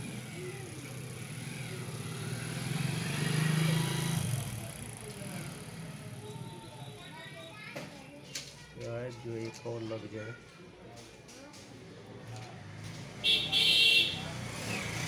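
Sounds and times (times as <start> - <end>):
vehicle passing: 0.0 - 6.4, 14.2 - 15.0.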